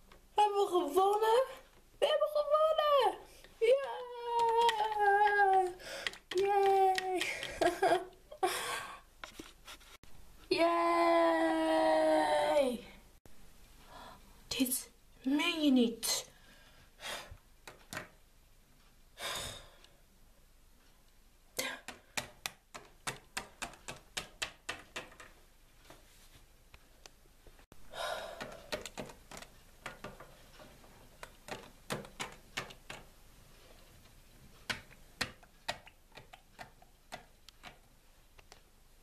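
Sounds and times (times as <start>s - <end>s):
plastic figurines tapping on sink: 3.7s - 8.0s.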